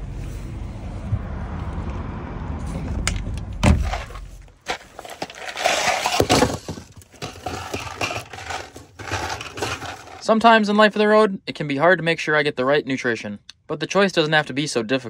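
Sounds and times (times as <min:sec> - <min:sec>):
low vehicle rumble: 0:00.0 - 0:05.5
sharp thump: 0:02.8 - 0:04.2
bag rustling: 0:03.8 - 0:10.2
plastic bottles clattering on table: 0:04.7 - 0:10.2.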